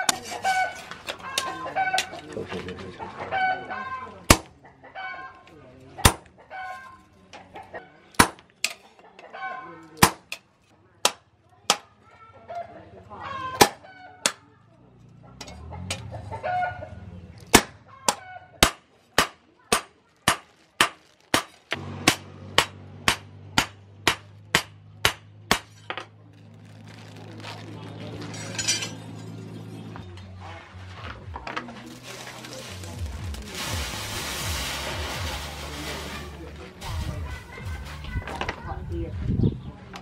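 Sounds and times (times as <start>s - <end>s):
chickens clucking: 0.0s - 8.1s, 8.8s - 9.9s, 15.2s - 18.7s
hammer striking steel on anvil: 22.0s - 25.9s.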